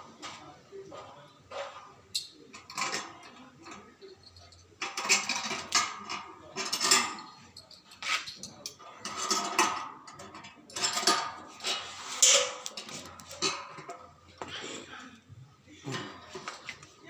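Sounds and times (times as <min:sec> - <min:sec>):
spanner clinking on metal bolts: 0:02.1 - 0:14.0.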